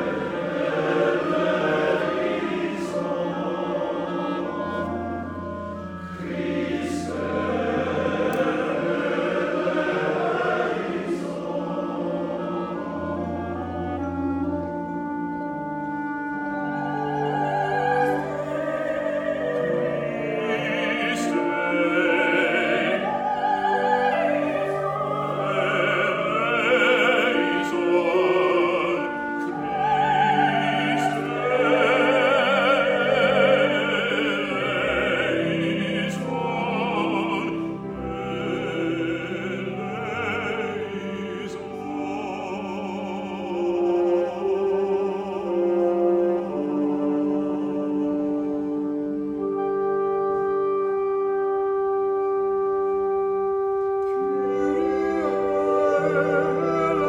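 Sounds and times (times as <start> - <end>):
sustained instrumental chords: 0.0 - 57.0
man singing classical style: 16.8 - 49.4, 54.1 - 57.0.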